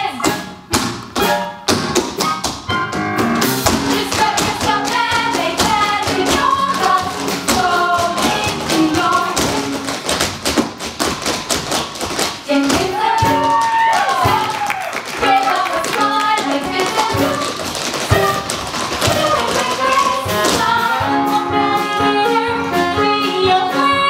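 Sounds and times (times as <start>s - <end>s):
show tune music: 0.0s - 24.0s
tap shoes striking stage: 0.2s - 20.9s.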